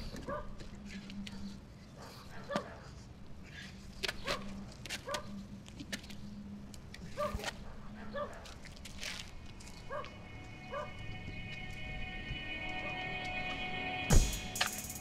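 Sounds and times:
dog barking: 0:00.2 - 0:00.6, 0:01.3 - 0:03.0, 0:04.2 - 0:05.4, 0:07.1 - 0:08.5, 0:09.9 - 0:11.0.

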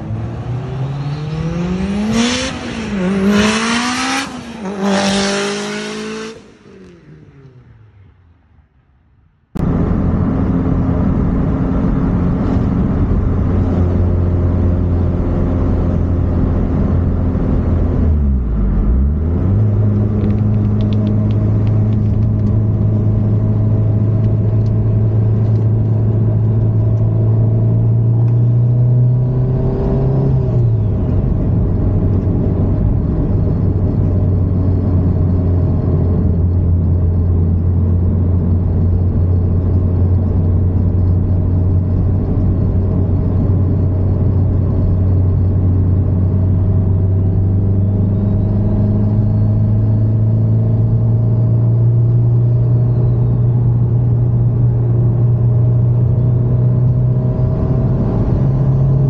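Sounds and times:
car engine revving: 0:00.0 - 0:07.7.

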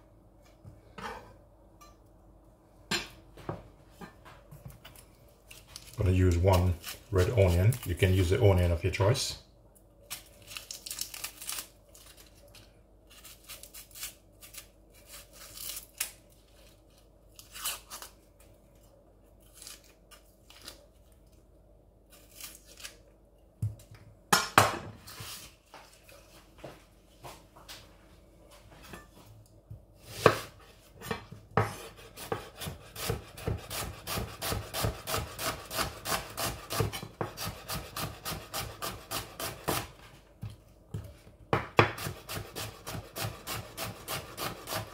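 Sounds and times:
onion skin crackling: 0:05.0 - 0:08.7, 0:10.0 - 0:23.2
knife slicing onion on board: 0:30.0 - 0:40.0, 0:40.9 - 0:44.9.

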